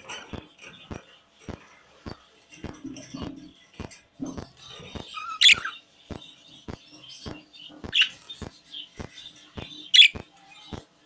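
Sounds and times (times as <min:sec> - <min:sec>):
budgerigars chattering softly: 0:00.0 - 0:11.0
sharp bird chirps: 0:04.7 - 0:10.9.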